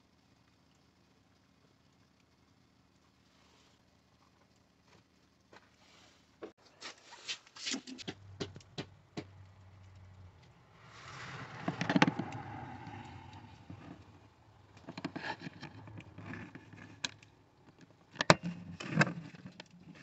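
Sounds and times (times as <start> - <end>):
hard plastic clicks and rubbing: 11.3 - 20.0.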